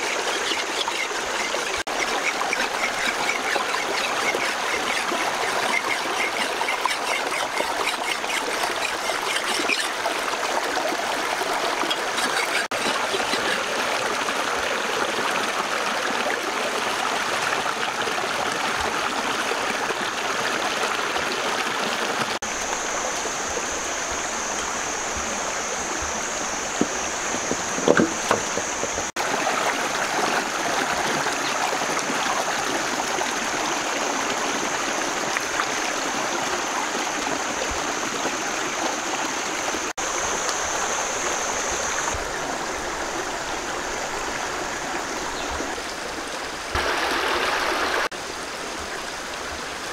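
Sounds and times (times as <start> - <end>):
stream rushing over stones: 0.0 - 49.9.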